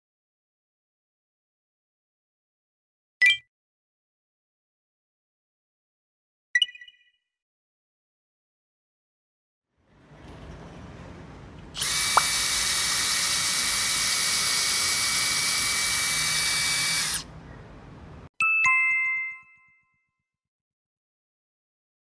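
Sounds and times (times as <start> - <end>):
cordless drill boring into wood: 11.7 - 17.3.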